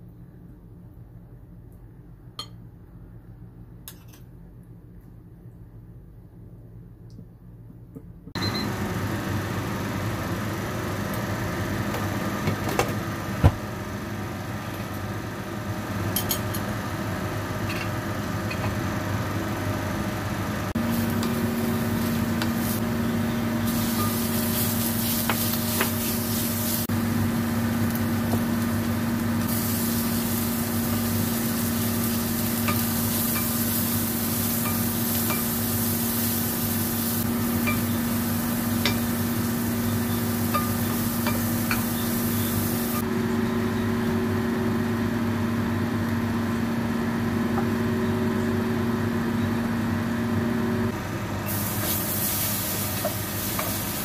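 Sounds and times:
food sizzling in oil: 20.8s - 43.0s, 51.5s - 54.0s.

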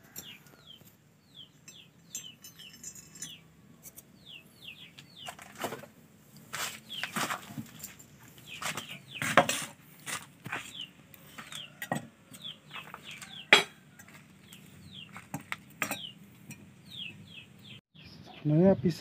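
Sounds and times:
birds chirping: 0.0s - 19.0s
metal clinking on wood: 1.5s - 4.1s, 14.9s - 17.1s.

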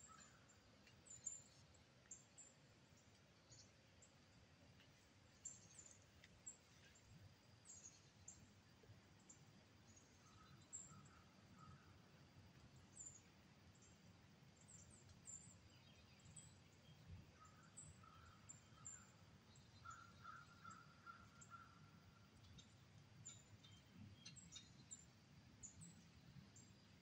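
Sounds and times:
lower bird calls: 19.8s - 21.9s.

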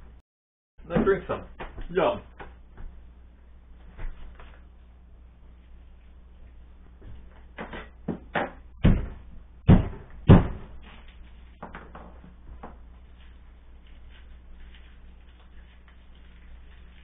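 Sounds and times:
thuds on cutting board: 7.6s - 10.7s.

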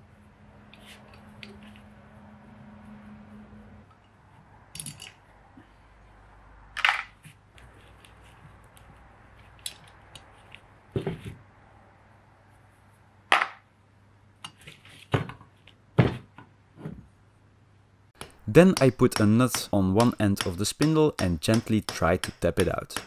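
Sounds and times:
metal parts and tools clicking: 3.9s - 5.3s, 9.5s - 10.6s.

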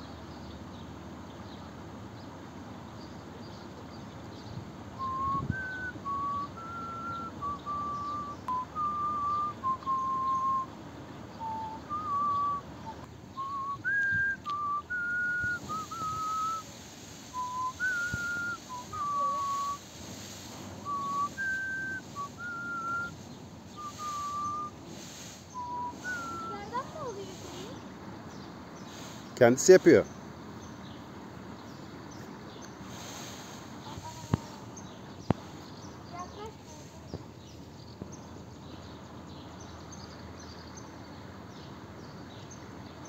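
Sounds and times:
person whistling a tune: 5.0s - 10.7s, 11.4s - 16.6s, 17.3s - 19.8s, 20.8s - 23.2s, 23.8s - 24.8s, 25.6s - 26.8s.

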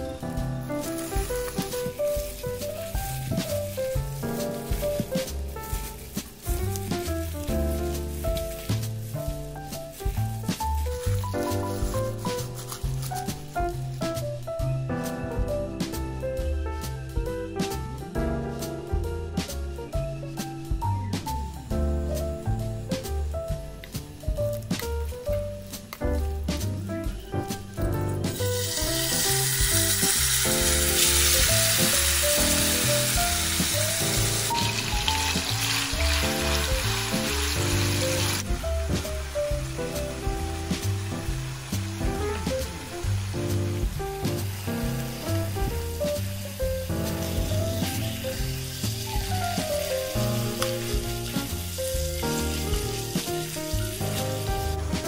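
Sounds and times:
meat sizzling in hot oil: 0.0s - 14.2s, 28.2s - 55.0s
background music: 0.0s - 55.0s.

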